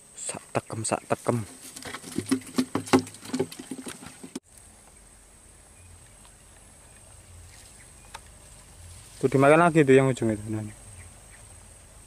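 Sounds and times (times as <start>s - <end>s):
rustling and clicking handling: 1.5s - 4.4s.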